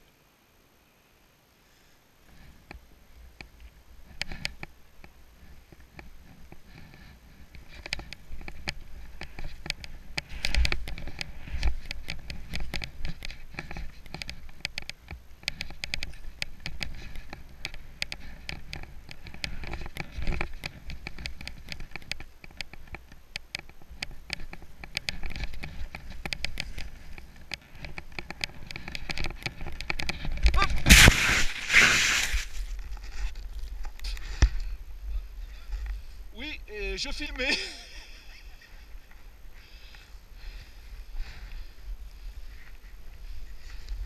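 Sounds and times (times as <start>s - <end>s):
skis scraping over snow: 24.7s - 33.4s.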